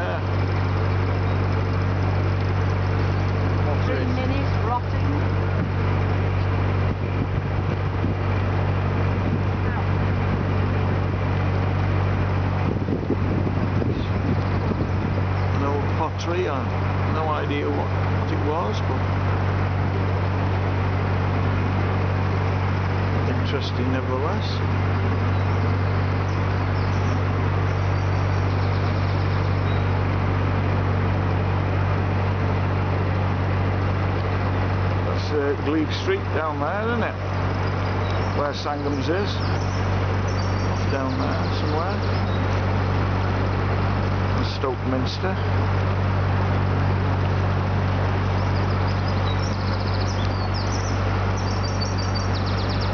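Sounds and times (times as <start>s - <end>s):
small birds chirping: 0.0s - 7.2s, 12.7s - 19.2s, 22.4s - 30.2s, 34.2s - 46.0s, 46.8s - 52.9s
diesel engine humming: 0.0s - 52.9s.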